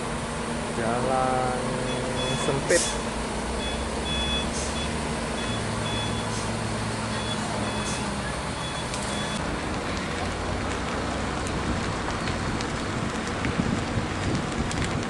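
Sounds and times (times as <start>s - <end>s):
distant traffic: 0.0s - 15.0s
heavy truck engine running: 0.0s - 15.0s
wind: 0.0s - 15.0s
vehicle warning alarm beeps: 1.8s - 3.0s, 3.6s - 6.4s, 7.1s - 9.4s.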